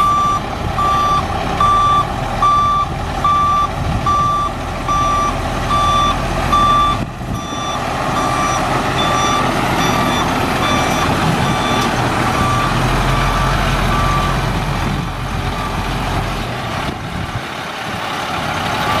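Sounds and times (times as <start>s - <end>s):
truck reverse alarm beeping: 0.0s - 14.4s, 15.5s - 15.9s
diesel engine running: 0.0s - 19.0s.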